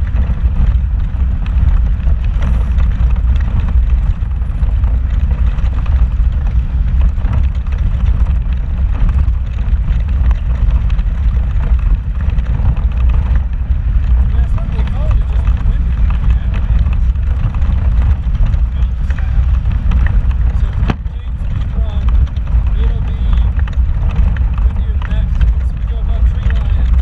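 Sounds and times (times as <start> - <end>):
engine and tyre rumble: 0.0 - 27.0
knocks and rattles: 0.0 - 27.0.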